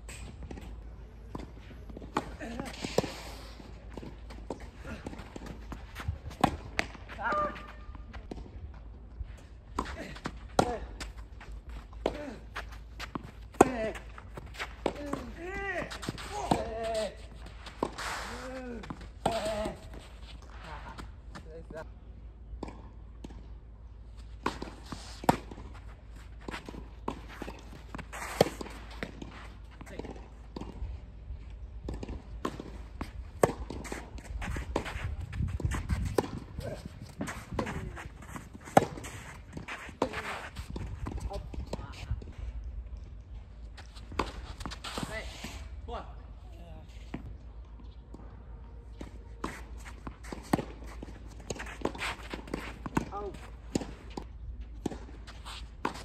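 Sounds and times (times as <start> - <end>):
footsteps and shuffling on court: 0.0 - 56.0
racket striking tennis ball: 26.5 - 29.3, 35.6 - 41.2.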